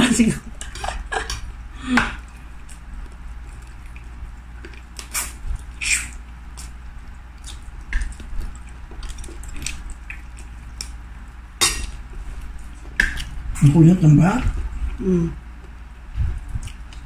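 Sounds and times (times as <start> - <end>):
low steady hum: 0.0 - 17.0
wet chewing mouth smacks: 7.4 - 11.0.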